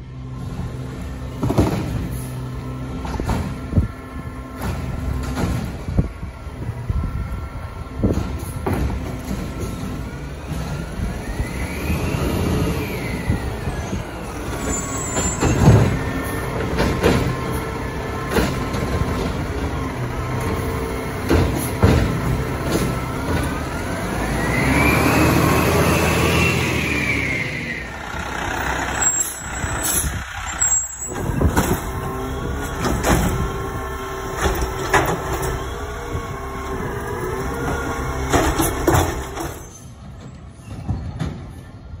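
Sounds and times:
garbage truck engine: 0:00.0 - 0:42.0.

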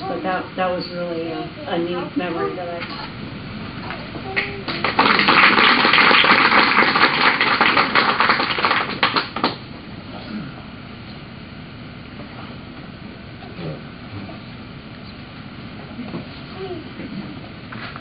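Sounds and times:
audience applauding: 0:04.3 - 0:09.6.

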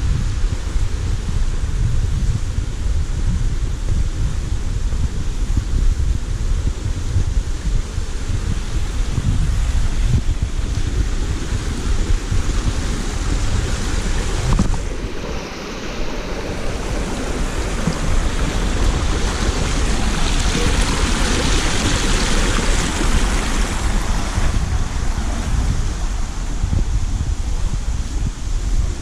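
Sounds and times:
wind buffeting microphone: 0:00.0 - 0:29.0
stream running over rocks: 0:04.8 - 0:29.0.

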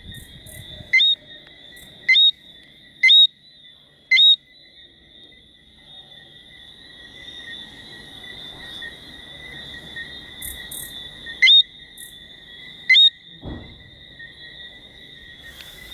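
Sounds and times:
frogs whistling chorus: 0:00.0 - 0:15.9
loud rising frog whistles: 0:02.0 - 0:02.4, 0:03.0 - 0:03.4, 0:04.1 - 0:04.5, 0:11.2 - 0:13.2
dull low thump: 0:13.4 - 0:14.0.

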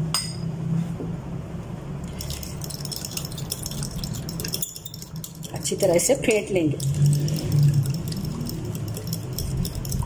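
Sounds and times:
low steady hum: 0:00.0 - 0:10.0
fork clicking against glass bowl: 0:02.9 - 0:10.0.

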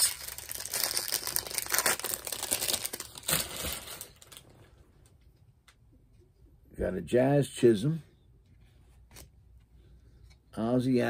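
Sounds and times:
wrapper crinkling and tearing: 0:00.0 - 0:04.7.

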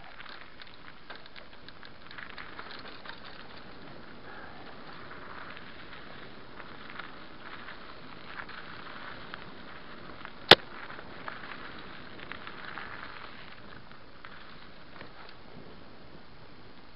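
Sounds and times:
small rattles and clicks: 0:00.0 - 0:09.2
bike rolling on dirt track: 0:00.0 - 0:16.9.

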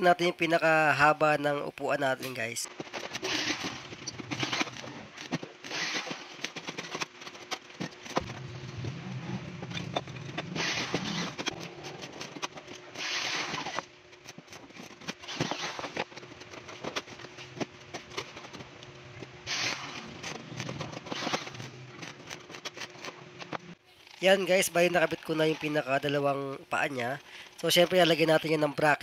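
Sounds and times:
low hum: 0:08.1 - 0:14.8.

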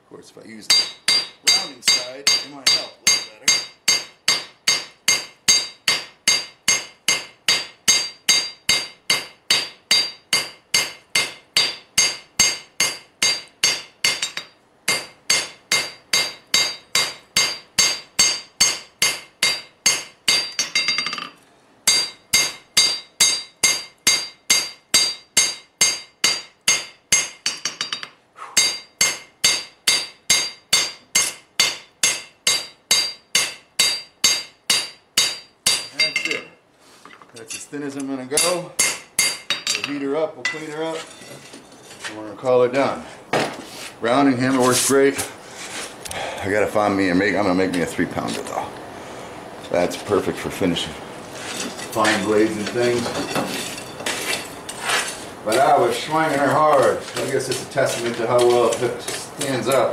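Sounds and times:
hammer ringing on hot steel: 0:00.7 - 0:36.6, 0:38.4 - 0:39.9.

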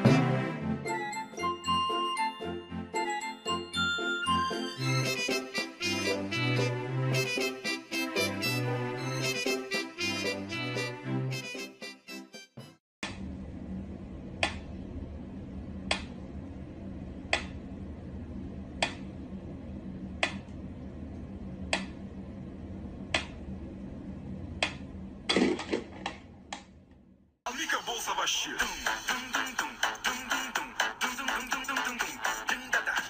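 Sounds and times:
steady low hum: 0:13.0 - 0:27.4.

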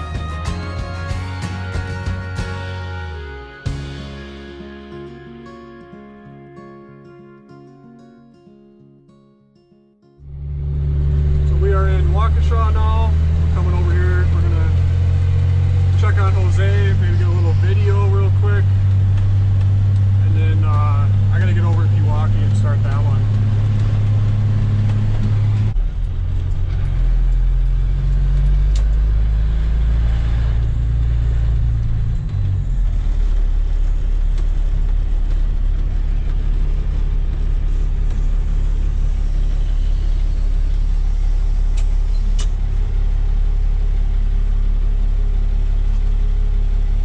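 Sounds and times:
truck engine slowing to idle: 0:10.3 - 0:47.0.

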